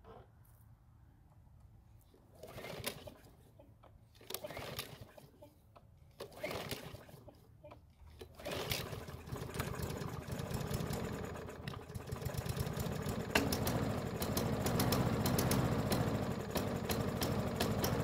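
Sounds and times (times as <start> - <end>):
lawn mower engine running: 8.2 - 18.0.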